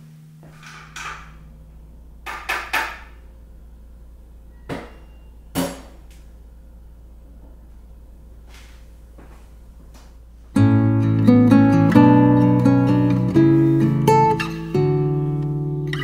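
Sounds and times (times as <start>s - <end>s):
low steady hum: 0.0s - 16.0s
dishes clinking and knocking: 2.2s - 3.2s, 4.6s - 6.0s.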